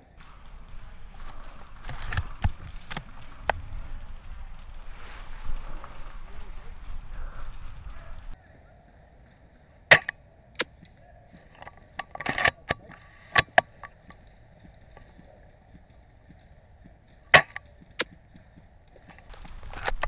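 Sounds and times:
airsoft gun shots: 9.9 - 10.1.

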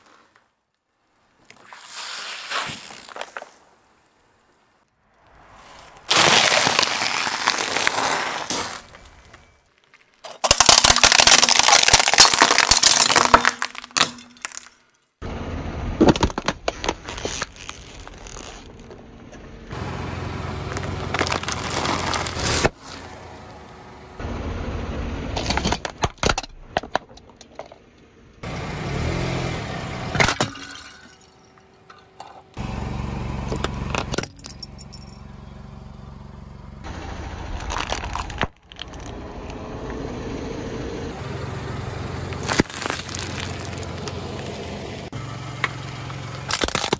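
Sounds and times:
tyre crushing snacks and packaging: 5.6 - 14.8, 16.0 - 19.0, 20.7 - 22.8, 37.5 - 39.2, 42.4 - 44.6, 46.4 - 46.9.

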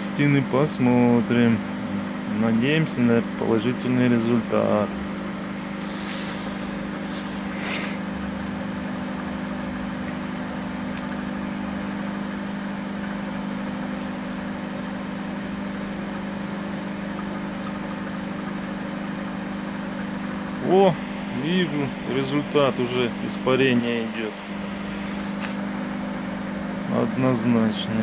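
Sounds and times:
microwave oven hum: 0.0 - 28.0
short hisses: 5.7 - 8.2.

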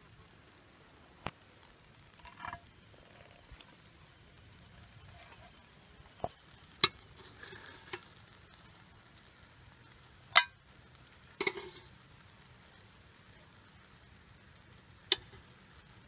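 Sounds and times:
metal tongs clinking on grill: 10.3 - 10.6, 11.4 - 11.9, 15.1 - 15.4.

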